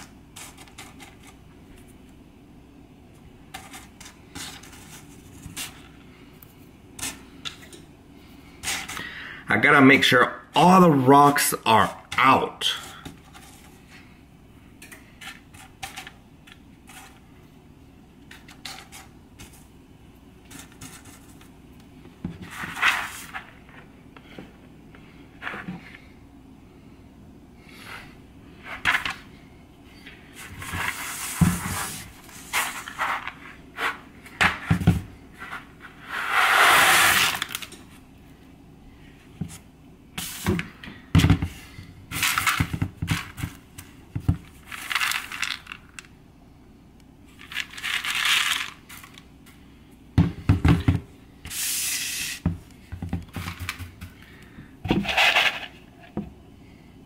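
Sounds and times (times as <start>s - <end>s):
beans pouring into plastic colander: 47.5s - 48.8s.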